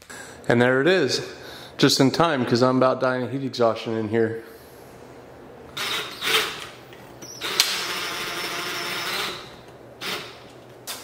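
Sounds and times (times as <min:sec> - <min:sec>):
impact driver driving screws: 0:05.8 - 0:10.4.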